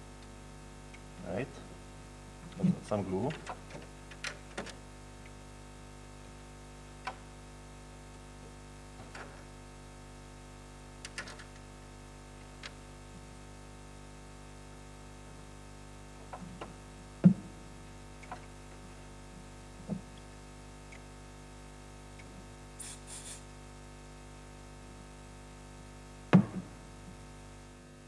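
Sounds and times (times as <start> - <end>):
faint steady hum: 0.0 - 28.0.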